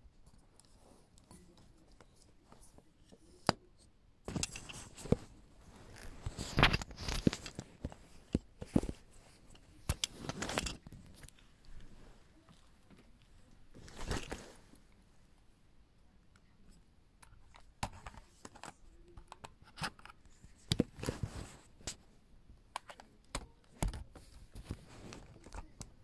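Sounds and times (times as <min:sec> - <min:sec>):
camera handling clicks and scrapes: 0:04.3 - 0:05.3, 0:05.9 - 0:11.4.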